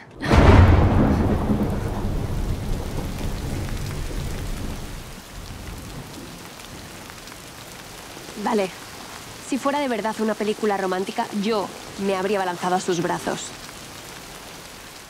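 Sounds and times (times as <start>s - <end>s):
thunder rumbling: 0.0s - 7.1s
heavy rain pouring: 0.0s - 15.0s.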